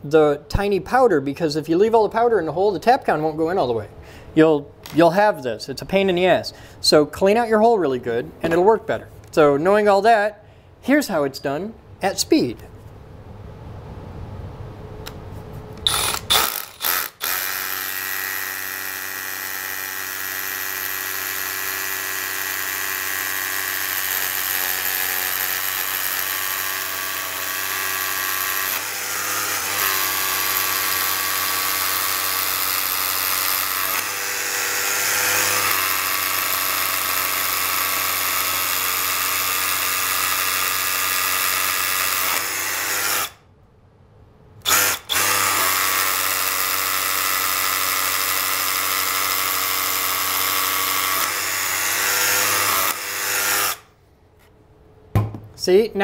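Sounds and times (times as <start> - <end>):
rotary hammer drilling into concrete: 15.8 - 43.4, 44.6 - 53.9.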